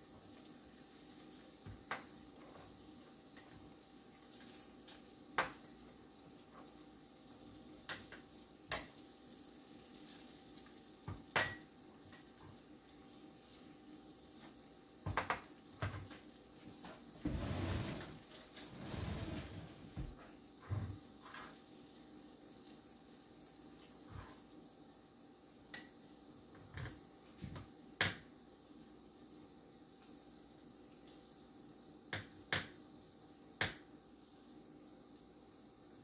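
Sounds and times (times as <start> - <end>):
beef sizzling in a skillet: 0.0 - 16.9, 20.4 - 36.0
scraping noise: 17.2 - 20.0.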